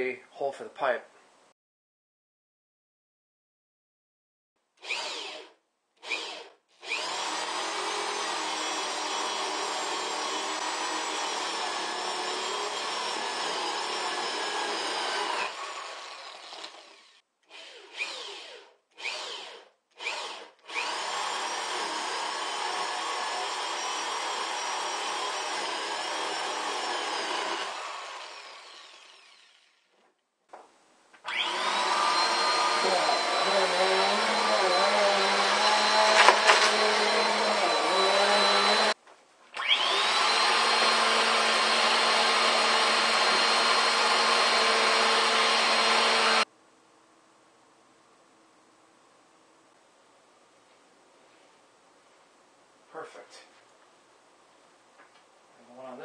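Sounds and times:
electric drill boring wood: 4.8s - 30.0s, 31.2s - 39.0s, 39.6s - 46.5s
vacuum cleaner running: 31.3s - 39.0s, 39.6s - 46.5s.

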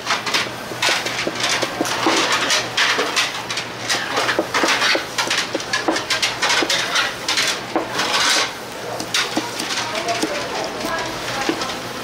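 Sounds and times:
dishes and utensils clattering: 0.1s - 11.8s.

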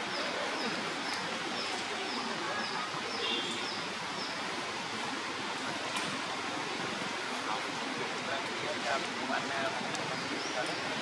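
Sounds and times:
rain on foliage: 5.5s - 11.0s.

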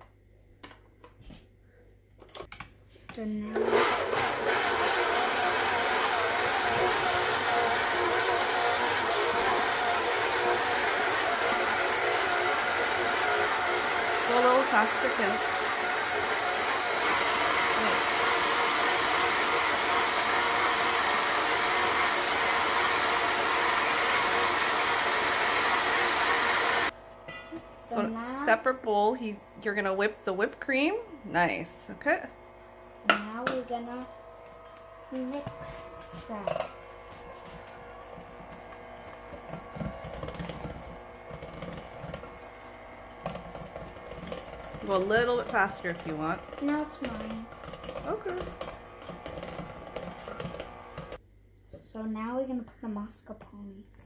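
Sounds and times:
stand mixer motor whir: 3.5s - 27.0s, 34.1s - 51.2s.

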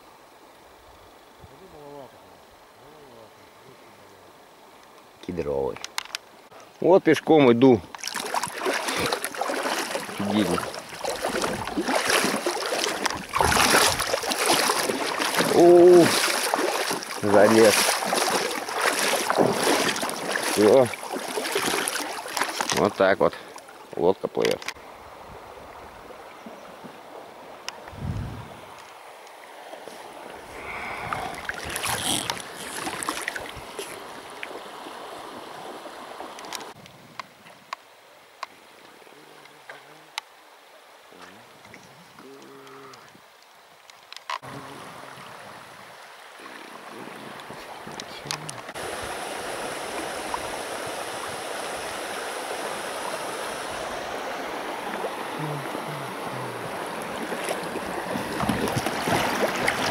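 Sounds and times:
water sloshing around legs: 7.9s - 23.9s, 30.4s - 36.8s, 54.7s - 59.9s
man vocalizing: 42.2s - 43.1s, 55.4s - 56.7s.

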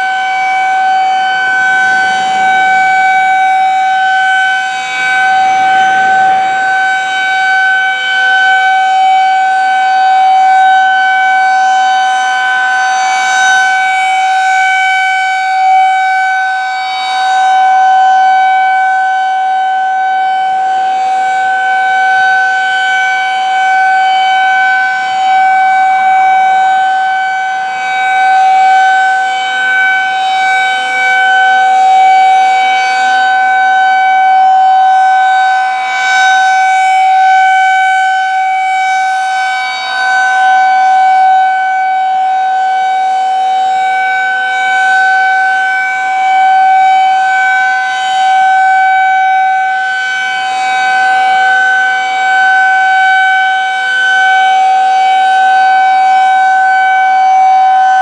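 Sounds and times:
warning siren steady wail: 0.0s - 58.0s.

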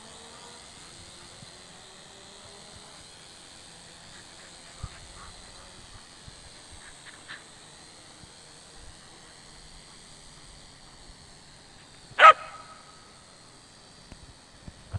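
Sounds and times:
dog barking: 12.2s - 12.8s.

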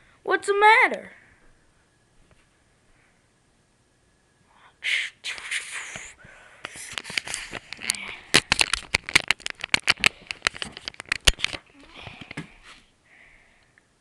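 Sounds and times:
camera handling rustling and scraping: 6.7s - 12.4s
fast clicks and taps: 6.9s - 12.4s.

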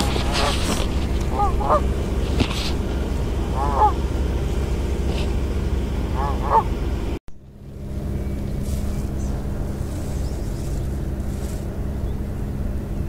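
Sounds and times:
geese honking: 0.0s - 7.2s
steady low rumble: 0.0s - 13.0s.

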